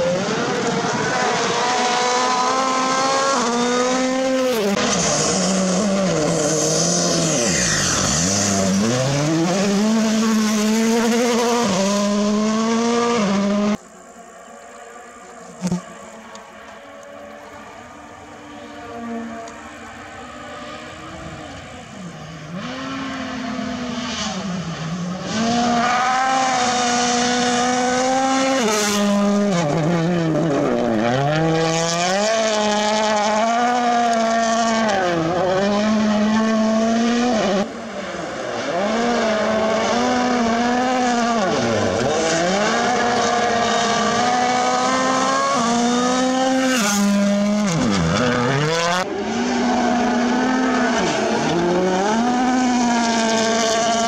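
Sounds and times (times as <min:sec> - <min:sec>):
rally car engine revving: 0:00.0 - 0:14.1, 0:15.3 - 0:54.0
gravel and tyres hissing: 0:00.0 - 0:34.3.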